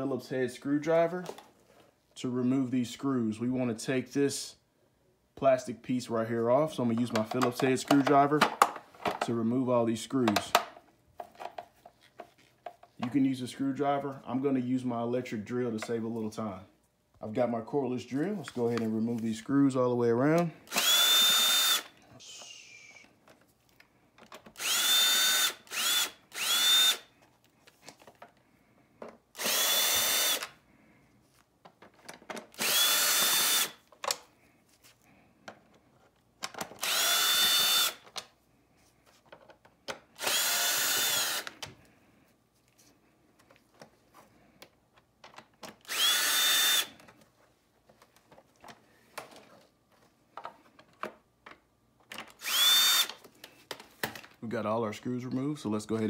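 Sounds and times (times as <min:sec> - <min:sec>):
cordless drill backing out screws: 0:20.7 - 0:21.9, 0:29.4 - 0:30.5, 0:32.5 - 0:34.2, 0:36.8 - 0:38.0, 0:40.2 - 0:41.6, 0:45.7 - 0:47.0, 0:52.2 - 0:53.2.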